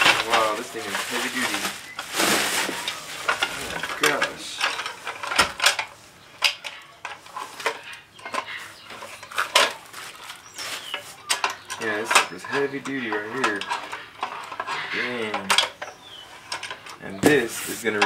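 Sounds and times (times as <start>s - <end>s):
bubble wrap crinkling: 0.0s - 4.4s, 9.3s - 11.2s.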